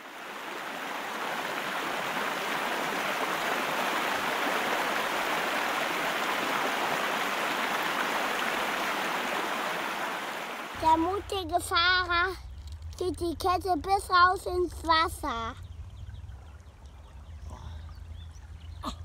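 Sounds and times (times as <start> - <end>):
stream running over stones: 0.0 - 13.0.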